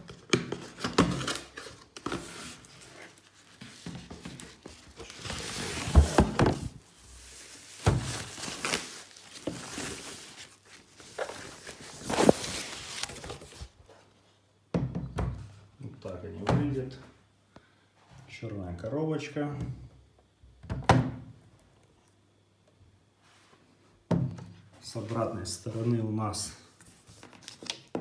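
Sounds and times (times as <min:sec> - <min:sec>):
rustling packaging: 0:00.0 - 0:14.0, 0:26.9 - 0:27.9.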